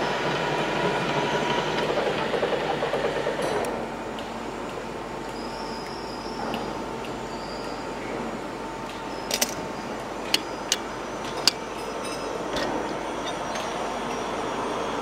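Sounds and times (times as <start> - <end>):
workshop hum: 0.0 - 15.0.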